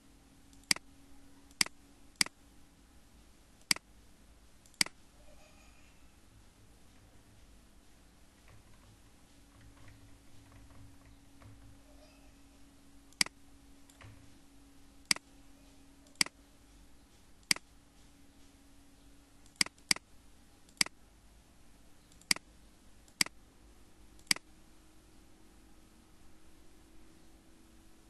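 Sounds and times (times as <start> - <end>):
computer mouse clicking: 0.5 - 0.9, 1.5 - 2.4, 3.6 - 3.8, 4.6 - 5.0, 13.1 - 14.2, 15.0 - 15.3, 16.0 - 16.4, 17.1 - 17.7, 19.4 - 20.1, 20.7 - 21.0, 22.1 - 22.5, 23.1 - 23.4, 24.2 - 24.4.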